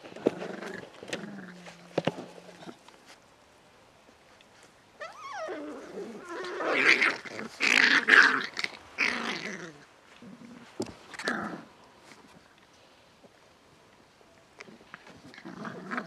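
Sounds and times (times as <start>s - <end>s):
puppies growling: 0.1s - 2.9s, 5.0s - 11.7s, 14.6s - 16.0s
puppy whining: 5.0s - 7.0s.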